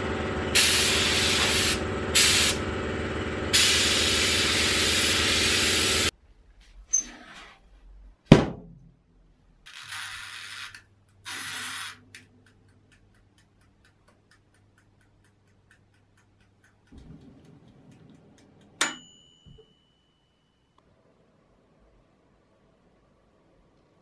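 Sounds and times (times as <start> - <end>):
timer dial winding rasp: 9.7 - 17.0
timer ticking: 12.0 - 19.4
low hum: 16.8 - 24.0
timer bell ding: 18.8 - 20.8.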